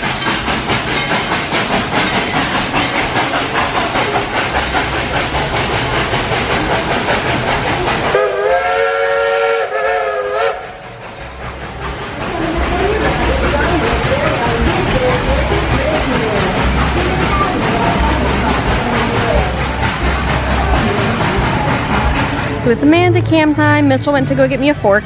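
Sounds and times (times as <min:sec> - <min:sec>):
steam locomotive chuffing: 0:00.0 - 0:25.0
steam whistle: 0:08.1 - 0:10.8.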